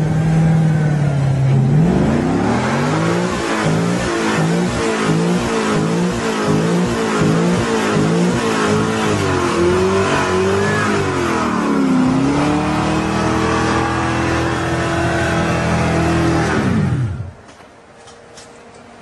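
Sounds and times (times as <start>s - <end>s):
car engine revving hard: 0.0s - 17.4s.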